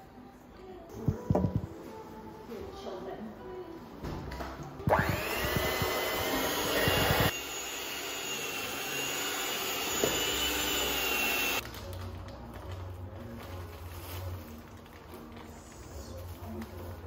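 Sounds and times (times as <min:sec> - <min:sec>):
electric hand mixer whining: 0:04.9 - 0:11.6.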